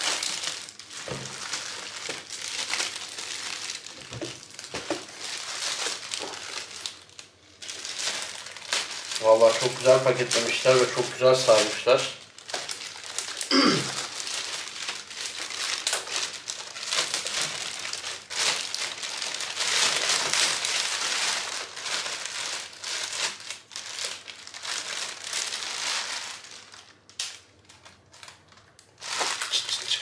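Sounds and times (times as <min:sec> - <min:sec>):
plastic bag crinkling: 0:00.0 - 0:30.0.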